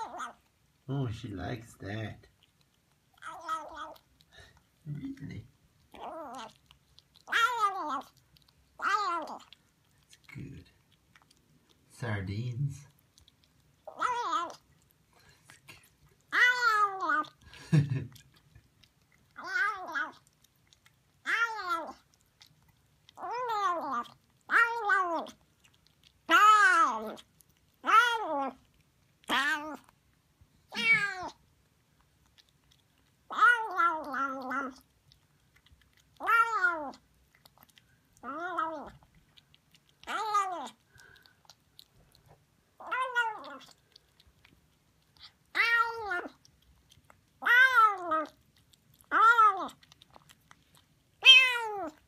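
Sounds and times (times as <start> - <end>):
kitten meowing: 3.2 - 4.0, 7.2 - 8.1, 13.9 - 14.6, 19.4 - 20.2, 27.8 - 28.6, 29.3 - 29.8, 30.7 - 31.4, 36.2 - 37.0, 38.2 - 39.0, 42.8 - 43.7, 45.5 - 46.4, 47.4 - 48.3, 49.1 - 49.8, 51.2 - 52.0.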